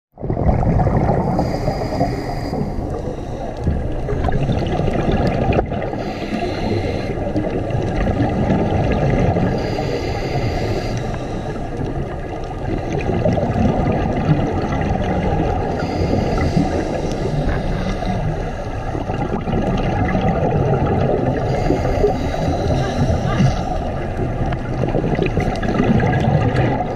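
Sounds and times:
underwater bubbling rumble: 0.2s - 26.9s
regulator inhale hiss: 1.2s - 4.4s, 5.8s - 7.6s, 9.5s - 11.9s, 15.6s - 18.9s, 21.4s - 24.2s.

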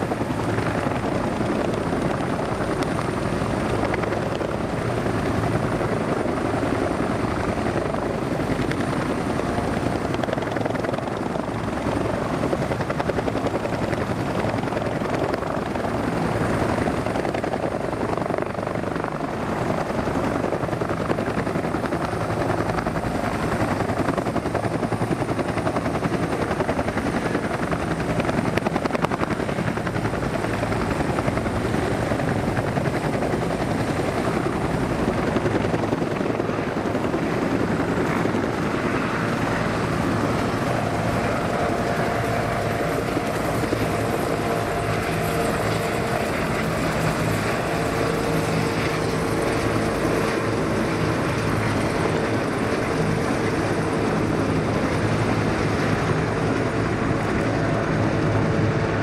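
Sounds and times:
helicopter rotor blades beating: 0.0s - 59.0s
turbine whine: 28.2s - 59.0s.

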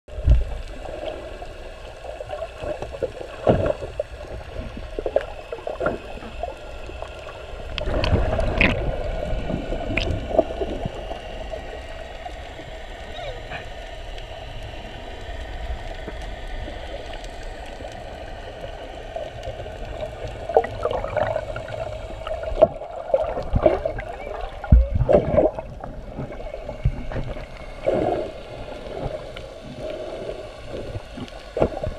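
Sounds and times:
muffled underwater hum: 0.1s - 31.9s
water gurgling: 0.1s - 31.9s.

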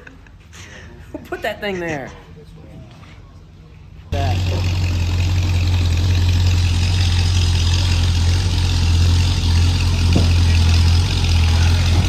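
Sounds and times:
car engine idling: 4.2s - 12.0s.

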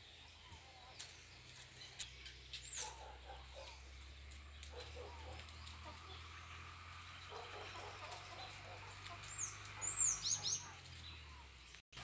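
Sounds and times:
chickens clucking: 4.6s - 11.5s
high bird chirp: 7.2s - 11.8s.

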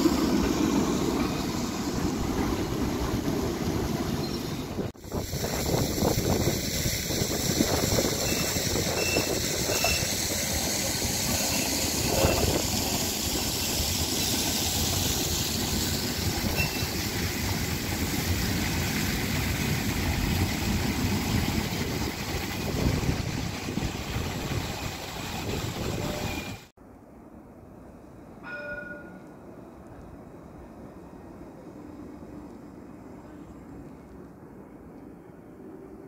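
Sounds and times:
tram wheels rumbling on rail: 0.0s - 26.7s
street sound: 0.0s - 36.0s.

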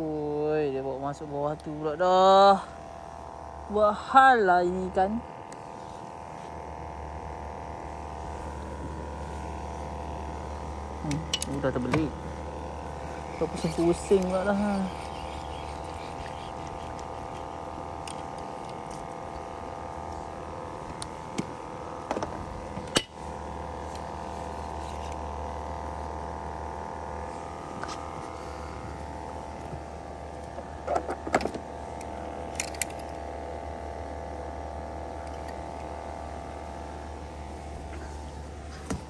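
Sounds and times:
steady mechanical hum: 0.0s - 39.0s.

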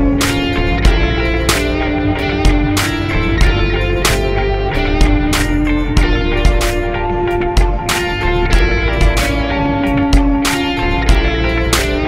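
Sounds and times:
drum beat: 0.0s - 12.0s
guitar music: 0.0s - 12.0s.

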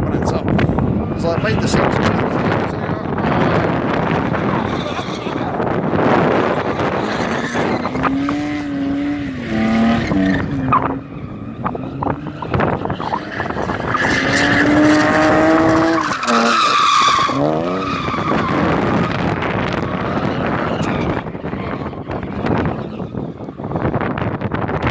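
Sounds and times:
car engine revving hard: 1.9s - 22.8s
tyres squealing on concrete: 4.4s - 5.6s, 6.6s - 8.4s, 9.4s - 19.2s, 19.8s - 23.6s.

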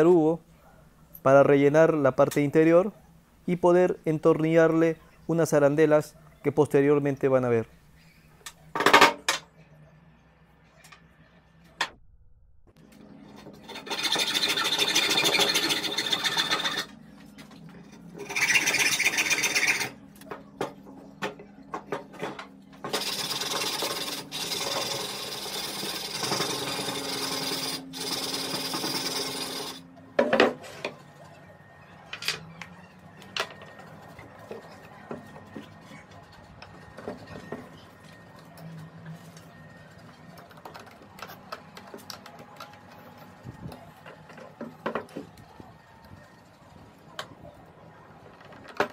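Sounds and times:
rasping hand-tool strokes: 13.6s - 16.9s, 18.2s - 20.0s, 22.9s - 29.8s.

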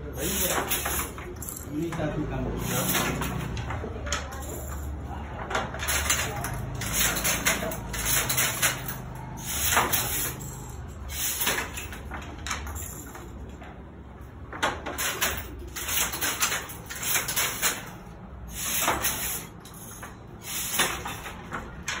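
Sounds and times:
wooden loom clacking: 5.4s - 18.0s, 18.6s - 22.0s.

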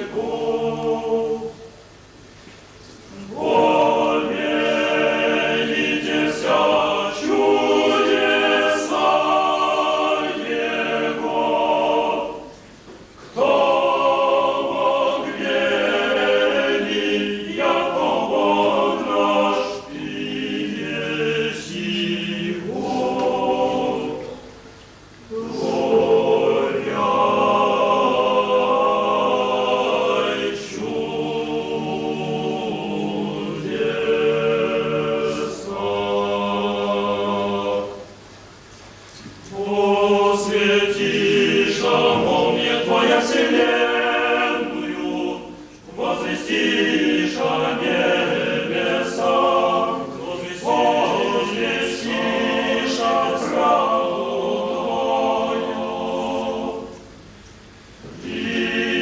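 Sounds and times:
choir singing a cappella: 0.0s - 2.2s, 2.8s - 38.4s, 39.1s - 59.0s.

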